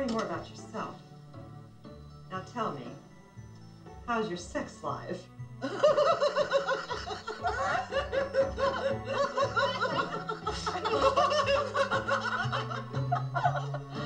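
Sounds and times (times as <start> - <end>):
background music: 0.0 - 14.0
women laughing: 5.6 - 14.0.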